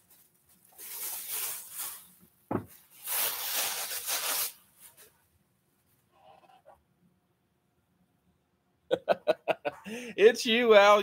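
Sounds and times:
plastic bag crinkling: 0.0s - 5.1s.

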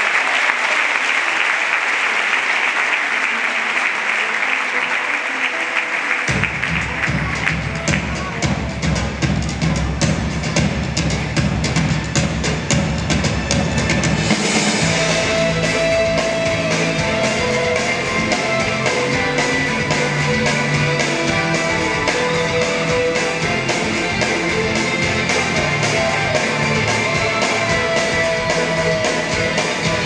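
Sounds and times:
rock band music: 6.3s - 30.0s.

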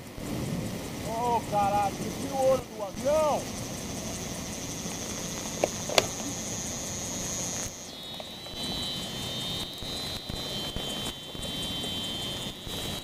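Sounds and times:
high-pitched whine: 0.0s - 13.0s
sharp clicks: 7.4s - 13.0s.

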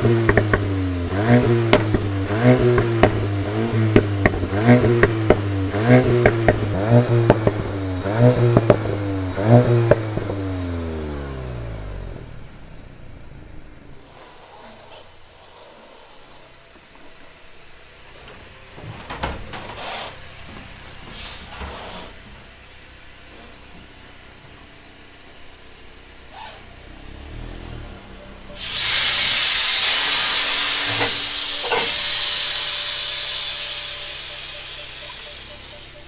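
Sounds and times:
engine knocks: 0.0s - 10.5s, 29.9s - 36.0s
car running on dyno: 0.0s - 14.1s, 16.2s - 36.0s
loud steady hiss: 28.6s - 36.0s.

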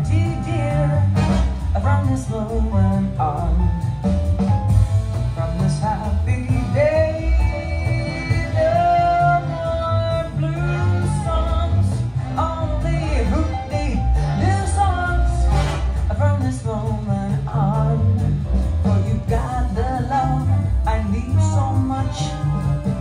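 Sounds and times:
person singing: 0.0s - 3.8s, 5.4s - 23.0s
bass line: 0.0s - 23.0s
song over loudspeakers: 0.0s - 23.0s.

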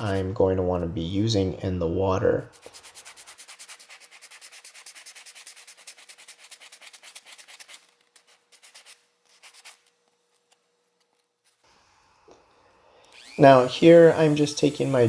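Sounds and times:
sanding block rubbing wood: 0.0s - 0.3s, 2.6s - 9.8s.

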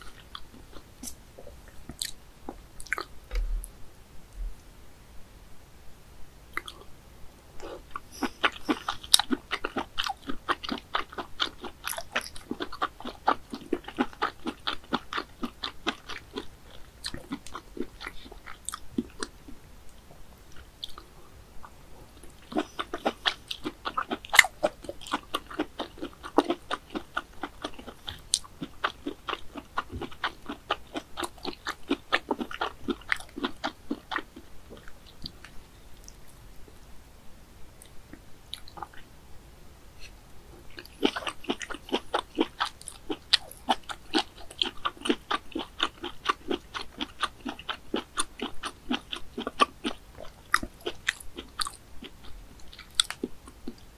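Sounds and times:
wet mouth chewing: 2.8s - 3.5s, 6.6s - 6.8s, 7.6s - 19.6s, 20.5s - 36.2s, 40.7s - 53.9s.

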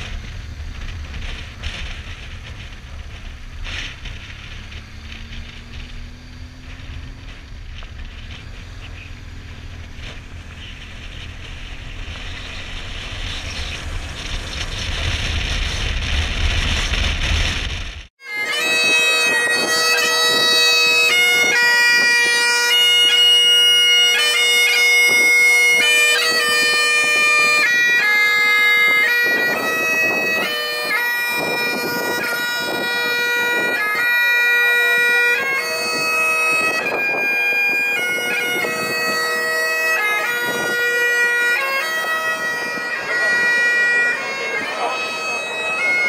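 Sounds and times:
bagpipes playing a tune: 18.2s - 46.0s.

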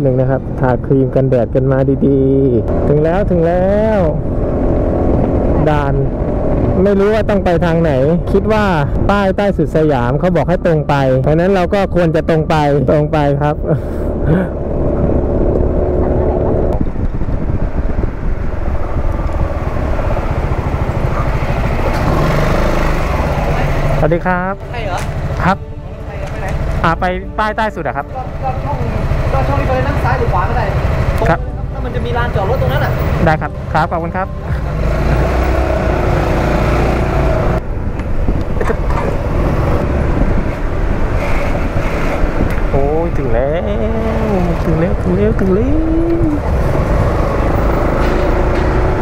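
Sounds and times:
wind and road noise: 0.0s - 49.0s
scooter engine running: 14.1s - 24.0s, 28.2s - 33.1s.

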